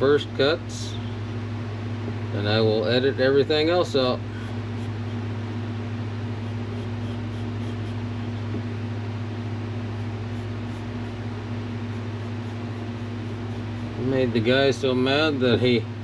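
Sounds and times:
fan humming and blowing air: 0.0s - 16.0s.

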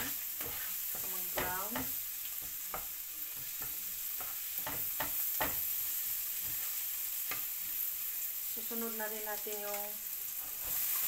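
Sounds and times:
wooden spatula scraping pan: 0.0s - 5.6s
garlic sizzling in oil: 0.0s - 11.0s.

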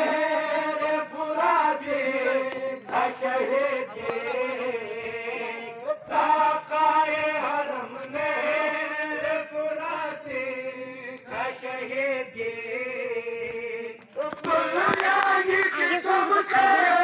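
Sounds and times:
men chanting together: 0.0s - 17.0s.

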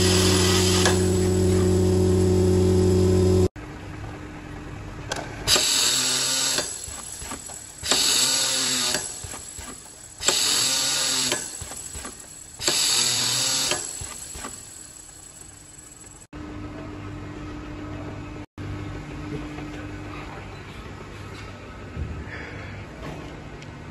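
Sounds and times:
filling machine motor whine: 0.0s - 3.5s, 5.5s - 16.5s
machine running steadily: 0.0s - 20.2s.

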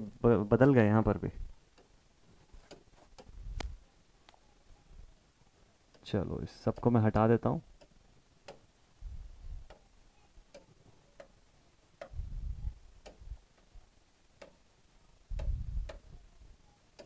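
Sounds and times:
low dull thuds: 15.3s - 16.2s.

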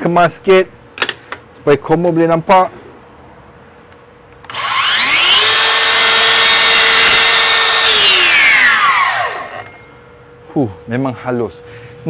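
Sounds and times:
mitre saw motor whining: 4.5s - 9.9s.

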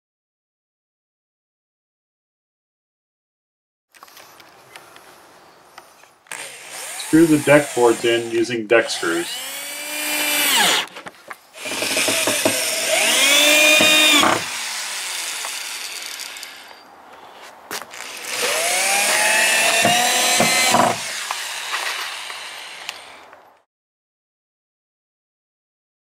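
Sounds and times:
power drill motor whining: 6.3s - 11.0s, 11.6s - 16.8s, 17.9s - 23.5s.

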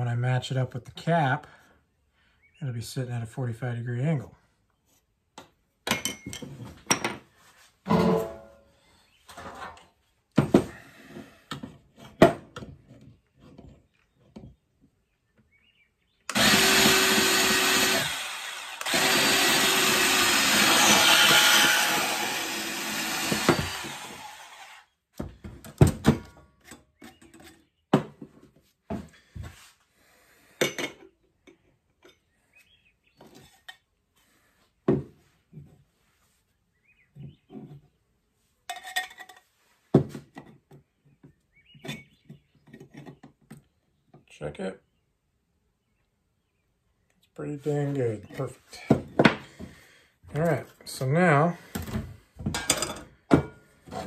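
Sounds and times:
band saw cutting metal pipe: 16.3s - 24.9s.

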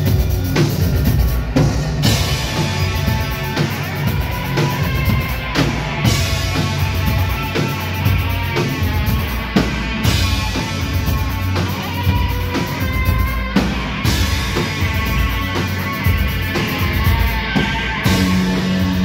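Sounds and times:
steady drum beat: 0.0s - 19.0s.

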